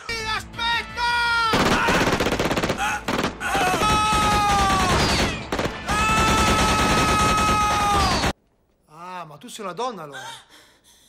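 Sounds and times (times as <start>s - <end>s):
rapid gunfire: 1.6s - 8.3s.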